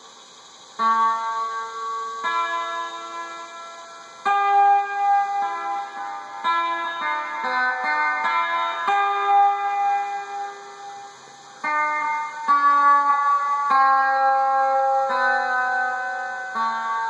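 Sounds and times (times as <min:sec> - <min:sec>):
acoustic guitar picked slowly: 0:00.0 - 0:17.0.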